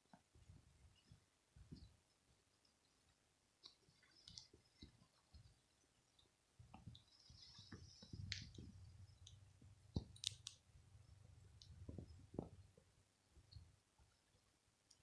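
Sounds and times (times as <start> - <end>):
faint clicks: 2.5 - 10.6.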